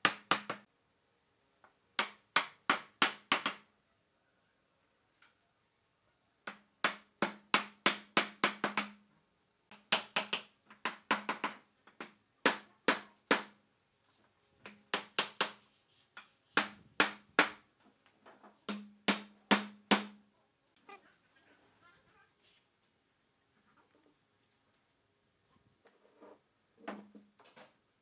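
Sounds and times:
hammer striking wood: 0:00.0 - 0:00.6, 0:02.0 - 0:03.6, 0:06.5 - 0:09.0, 0:09.7 - 0:13.6, 0:14.7 - 0:15.6, 0:16.6 - 0:17.6, 0:18.7 - 0:20.2.

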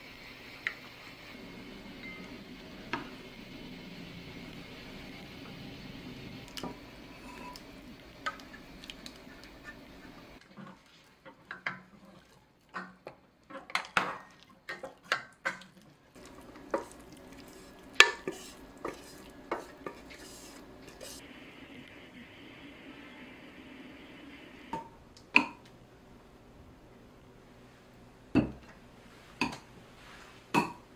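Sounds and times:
spatulas scraping a metal pot: 0:07.0 - 0:08.6, 0:16.2 - 0:21.2.

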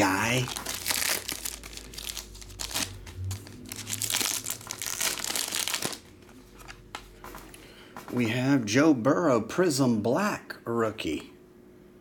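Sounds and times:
plastic and foil wrapper crinkling: 0:00.0 - 0:06.8.

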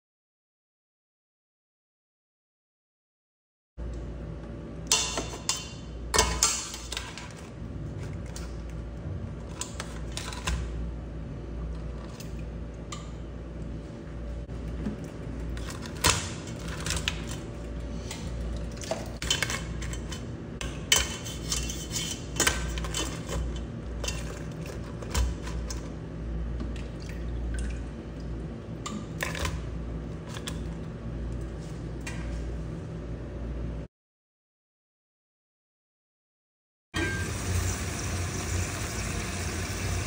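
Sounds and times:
low hum: 0:03.8 - 0:20.9.

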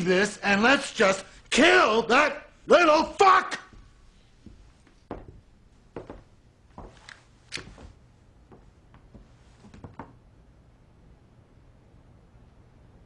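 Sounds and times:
faint footfalls: 0:03.6 - 0:10.2
small knocks: 0:04.4 - 0:05.4.

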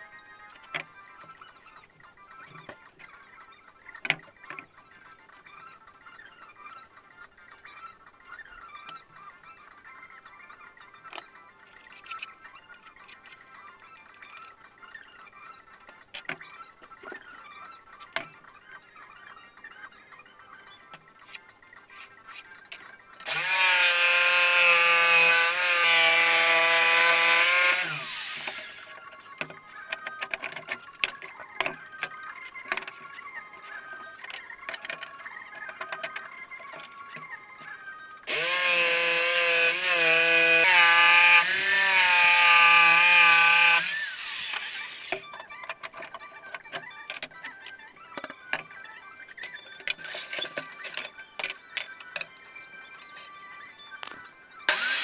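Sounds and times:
electric jigsaw cutting board: 0:23.2 - 0:28.9, 0:38.3 - 0:45.2, 0:54.7 - 0:55.0.

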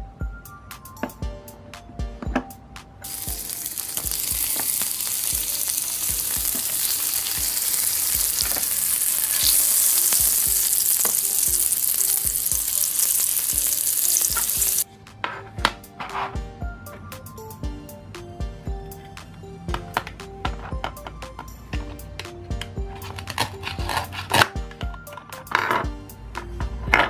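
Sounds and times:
meat sizzling on grill: 0:03.0 - 0:14.8.

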